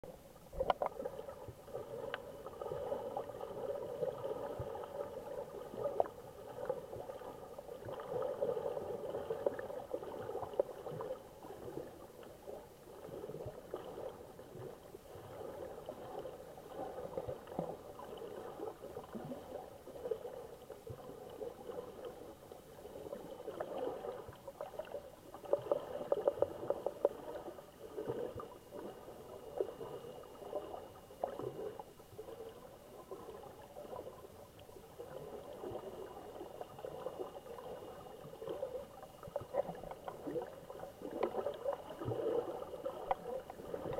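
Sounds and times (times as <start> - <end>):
muffled underwater hum: 0.0 - 43.9
faint clicks: 0.6 - 1.0, 43.0 - 43.2.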